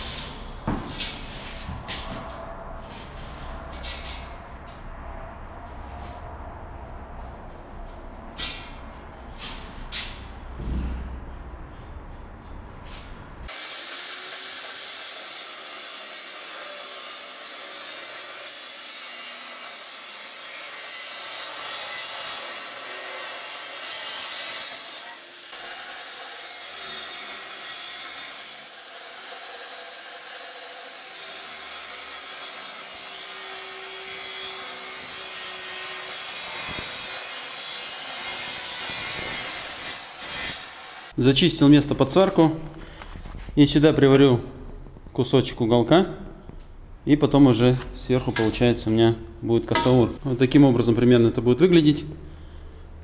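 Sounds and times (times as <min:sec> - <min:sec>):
angle grinder cutting steel: 0:13.5 - 0:41.2.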